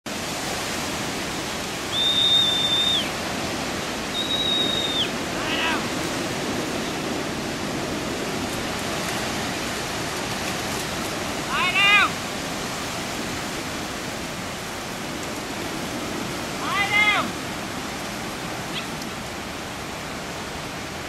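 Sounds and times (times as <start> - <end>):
wind on microphone: 0.1 - 21.0
long level whistles: 1.8 - 3.2, 4.0 - 5.2
short call: 1.9 - 3.1.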